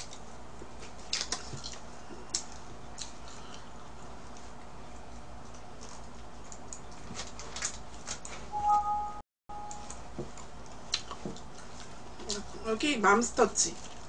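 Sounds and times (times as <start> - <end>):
chewing: 0.0 - 8.3, 10.3 - 12.5
low steady hum: 8.3 - 14.0.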